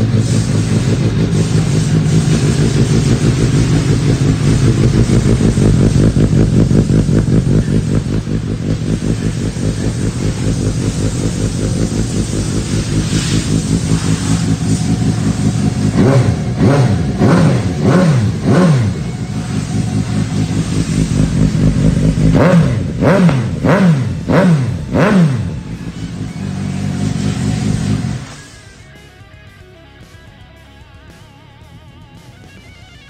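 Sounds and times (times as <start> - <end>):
motorcycle engine revving: 0.0 - 33.0.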